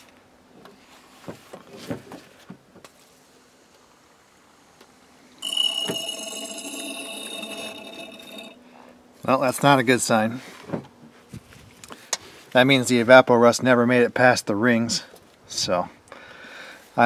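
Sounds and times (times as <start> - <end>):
squealing suction tone: 5.4 - 8.6.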